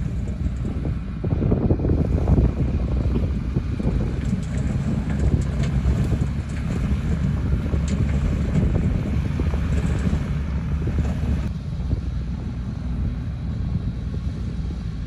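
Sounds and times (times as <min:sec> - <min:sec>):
diesel truck engine under load: 0:00.0 - 0:15.0
wind buffeting microphone: 0:00.0 - 0:15.0.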